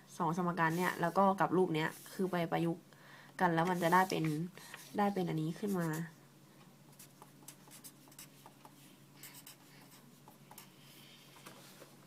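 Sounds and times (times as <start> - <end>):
marker scratching on paper: 3.6 - 6.1, 6.9 - 10.8.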